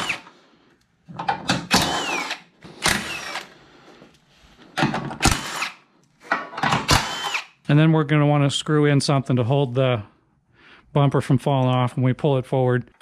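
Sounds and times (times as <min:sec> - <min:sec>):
cordless electric ratchet bursts: 0:01.7 - 0:03.5, 0:05.2 - 0:05.8, 0:06.9 - 0:07.6.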